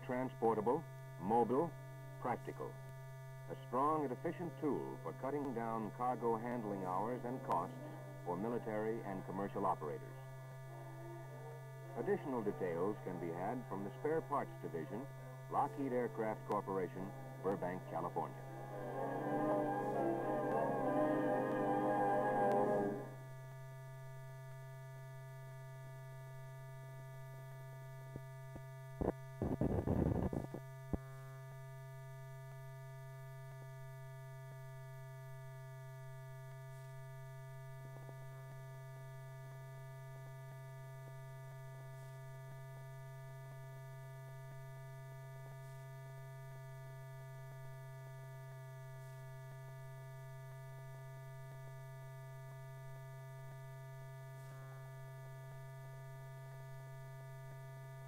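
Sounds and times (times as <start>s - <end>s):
faint steady tones: 0.0s - 28.0s
electrical hum: 0.0s - 50.4s
crackle and clicks: 13.2s - 18.8s.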